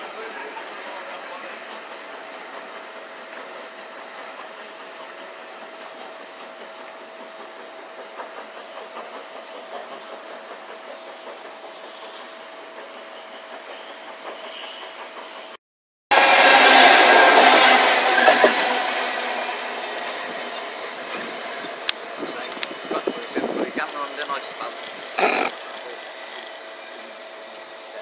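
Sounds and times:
steam train running noise: 0.0s - 28.0s
faint clicks of train wheels: 0.8s - 15.5s, 19.9s - 24.8s.

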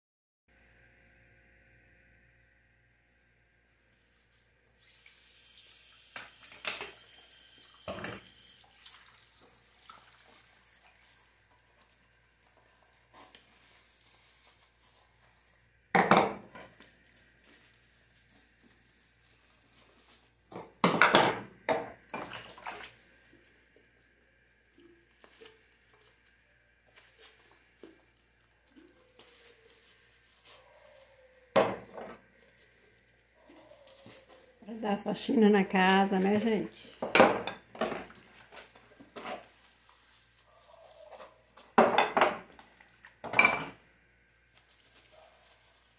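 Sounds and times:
tap running: 4.8s - 8.6s
dishes knocking and clinking: 7.9s - 8.2s, 16.0s - 16.7s, 20.6s - 22.3s, 31.6s - 32.2s, 37.0s - 38.1s, 41.8s - 42.5s, 43.2s - 43.8s
sponge scrubbing: 9.0s - 15.6s.

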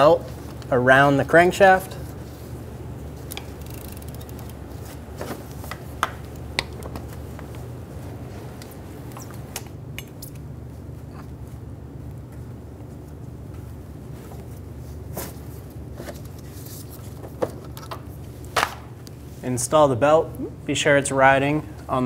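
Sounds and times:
steady low hum: 0.0s - 22.0s
wrench metallic clicks: 3.3s - 4.6s.

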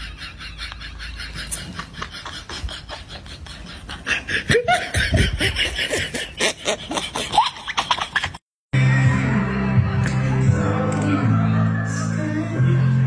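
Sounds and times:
person laughing: 0.0s - 8.4s.

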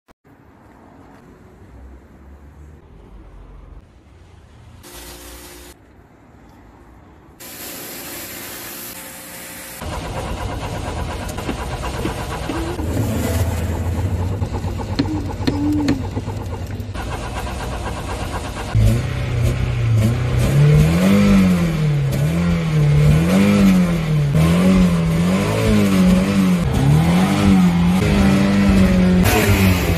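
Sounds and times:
car engine idling: 9.8s - 20.4s
car engine revving: 9.8s - 29.9s.

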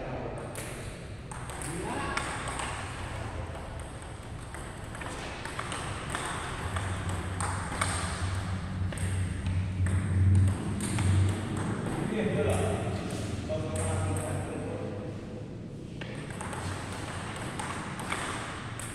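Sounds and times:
low hum: 0.0s - 18.9s
ping pong ball clicking: 0.5s - 12.1s, 16.0s - 18.9s.

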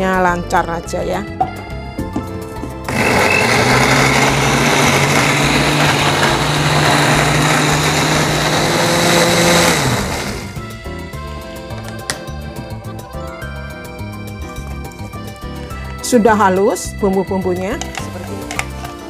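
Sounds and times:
blender motor grinding: 2.9s - 10.7s.

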